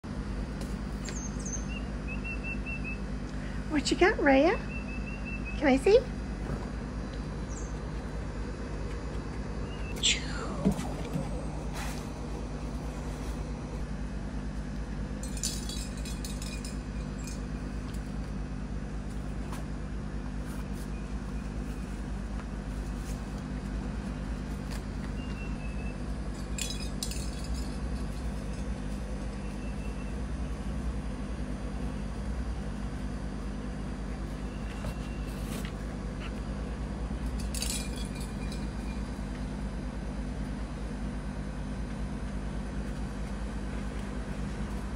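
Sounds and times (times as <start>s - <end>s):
steady low hum: 0.0s - 44.9s
light metallic clinks: 15.2s - 17.5s.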